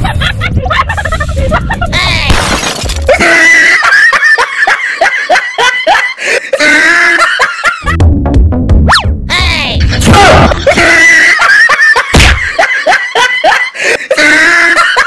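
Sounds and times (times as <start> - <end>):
person laughing: 0.0 - 2.2, 3.1 - 8.0, 9.6 - 15.0
background music: 6.5 - 13.4.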